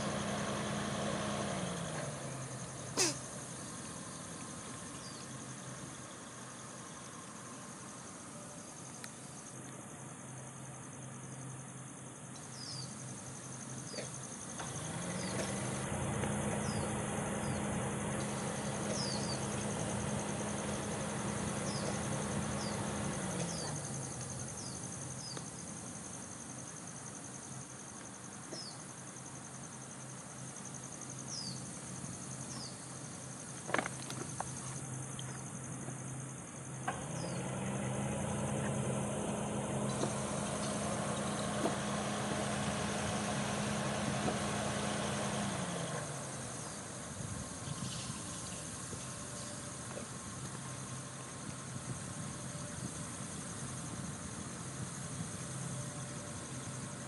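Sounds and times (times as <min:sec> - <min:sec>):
high insect drone: 0:00.0 - 0:57.0
low engine-like hum: 0:00.0 - 0:57.0
bird chirps: 0:16.6 - 0:19.6.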